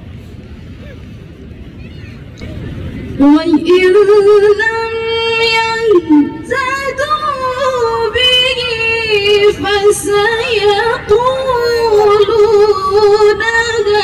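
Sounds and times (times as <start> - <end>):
woman reciting melodically: 3.2 - 14.0.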